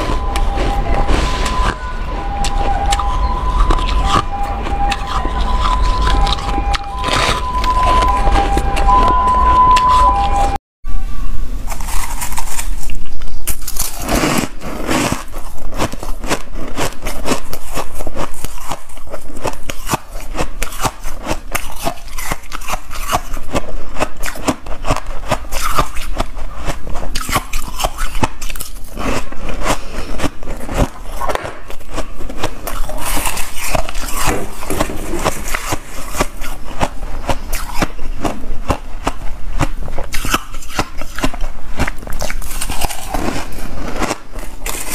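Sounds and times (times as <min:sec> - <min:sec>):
ice crunching while chewed: 0:00.0 - 0:10.5, 0:11.7 - 0:44.9
scraping: 0:00.0 - 0:10.6.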